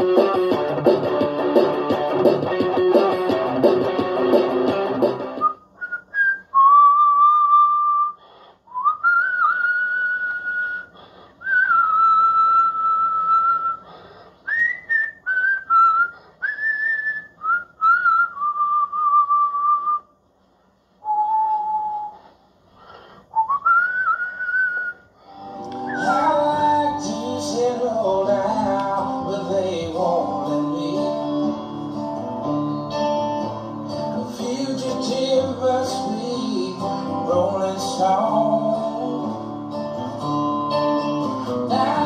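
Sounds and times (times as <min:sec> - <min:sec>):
electric guitar playing: 0:00.0 - 0:05.5, 0:25.3 - 0:42.0
man whistling melody: 0:00.0 - 0:20.2, 0:21.0 - 0:22.4, 0:23.3 - 0:42.0.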